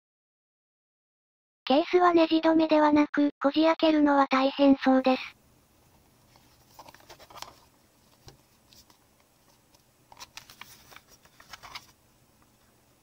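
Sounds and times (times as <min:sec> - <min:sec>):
plastic case clicking and rubbing: 0:06.4 - 0:12.0.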